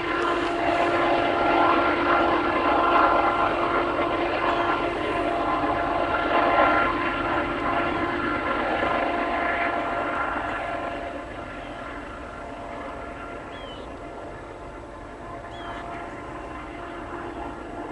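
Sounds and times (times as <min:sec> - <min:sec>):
diesel locomotive engine screaming: 0:11.0 - 0:17.9.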